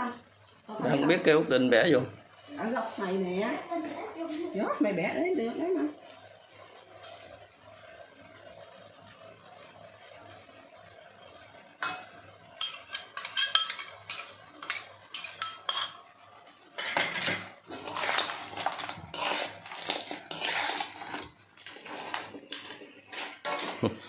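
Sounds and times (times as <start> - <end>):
metal spatula scraping wok: 16.8 - 24.0.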